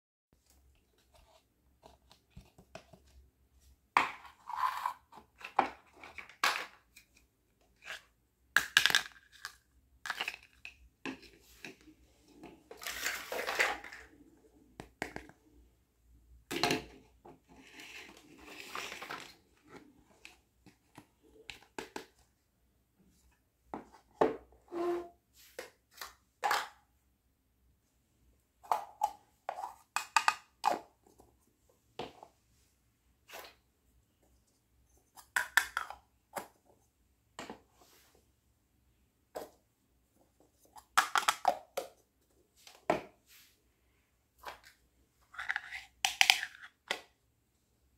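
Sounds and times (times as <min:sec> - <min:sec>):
plastic toys clicking and knocking: 0:05.4 - 0:11.3, 0:28.6 - 0:31.0, 0:35.1 - 0:36.6, 0:40.8 - 0:42.0, 0:45.3 - 0:47.2.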